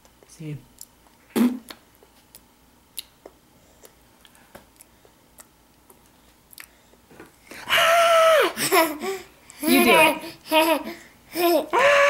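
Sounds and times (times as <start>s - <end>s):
toddler chewing: 0.0s - 7.1s.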